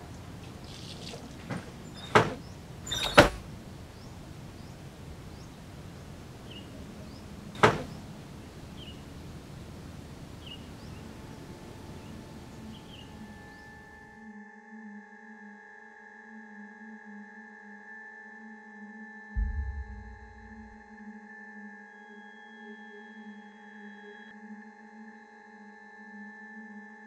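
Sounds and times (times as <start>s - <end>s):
sharp door knocks: 1.5s - 3.5s, 7.6s - 8.0s
low steady hum: 19.4s - 20.8s.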